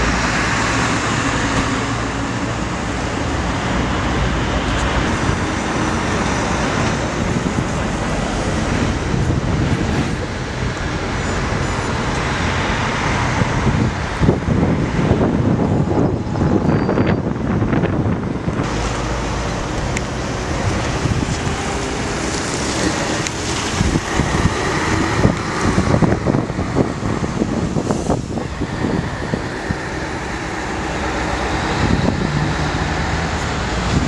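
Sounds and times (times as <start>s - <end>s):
cars driving past: 0.0s - 34.0s
wind rumbling on microphone: 0.0s - 34.0s.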